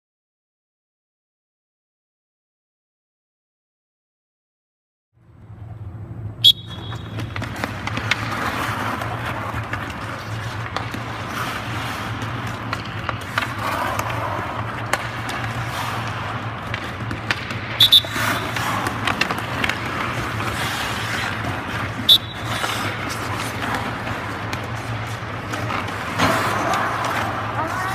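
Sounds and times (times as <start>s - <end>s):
low arena hum: 5.2s - 27.9s
sharp whistle: 6.4s - 7.2s, 17.8s - 18.2s, 22.1s - 22.5s
skates scraping on ice: 6.4s - 27.9s
sticks and puck clacking: 6.4s - 27.9s.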